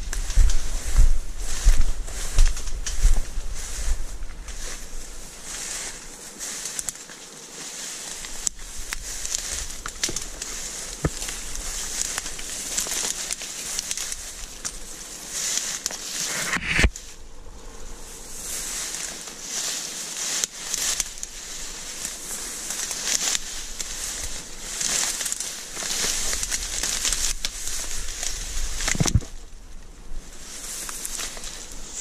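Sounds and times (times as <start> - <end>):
reeds and grass rustling: 0.0 - 32.0.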